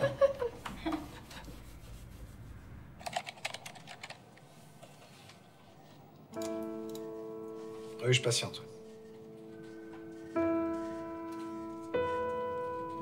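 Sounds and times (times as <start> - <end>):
typing on computer keyboard: 3.0 - 4.2.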